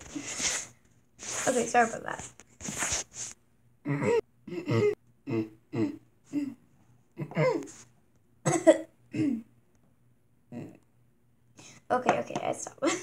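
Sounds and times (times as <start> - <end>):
person making short vocal sounds: 3.8 - 6.6.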